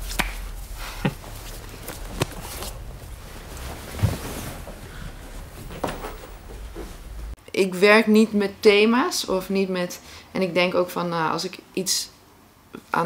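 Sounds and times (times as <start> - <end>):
room tone hiss: 0.0 - 13.0
dull thump: 2.0 - 7.4.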